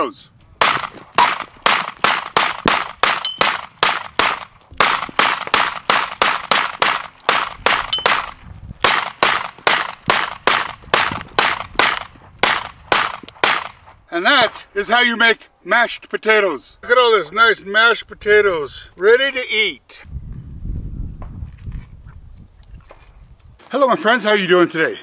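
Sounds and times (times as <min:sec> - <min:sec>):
pistol firing rapidly: 0:00.6 - 0:13.8.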